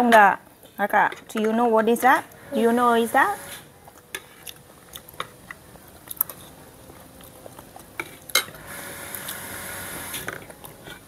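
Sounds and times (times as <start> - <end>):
spoons clinking on plates: 8.0 - 8.6.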